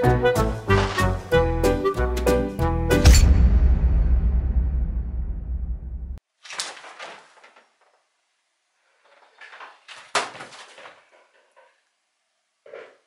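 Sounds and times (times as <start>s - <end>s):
papers rustling: 0.6s - 1.4s, 6.3s - 8.1s, 8.9s - 11.8s.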